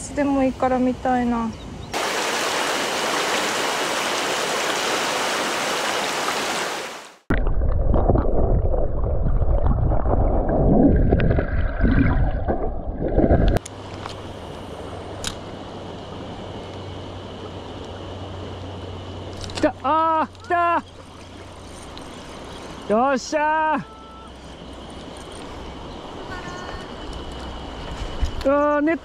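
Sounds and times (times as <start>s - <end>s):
stream rushing over a riffle: 2.0s - 7.2s
shallow water flowing: 2.0s - 19.6s, 20.4s - 28.5s
muffled underwater current rumble: 7.3s - 13.6s.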